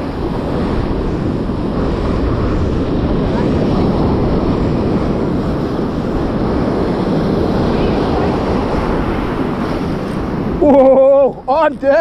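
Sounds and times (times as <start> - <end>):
ocean surf: 0.0 - 12.0
wind buffeting microphone: 0.0 - 12.0.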